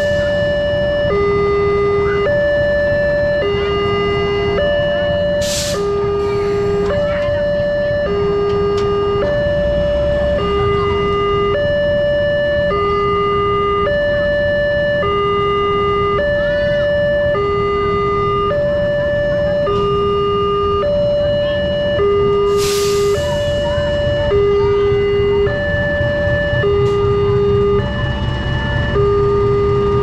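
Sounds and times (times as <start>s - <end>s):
diesel locomotive rumble: 0.0s - 30.0s
level crossing alarm two tones: 0.0s - 30.0s.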